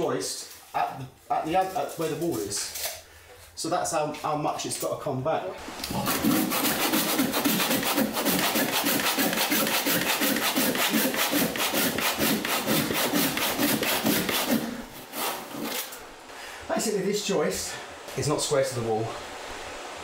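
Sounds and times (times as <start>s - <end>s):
handsaw cutting wood: 5.8s - 16.0s.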